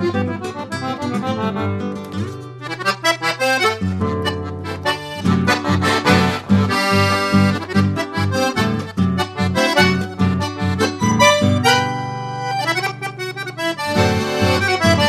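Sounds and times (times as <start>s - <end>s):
accordion music: 0.0s - 15.0s.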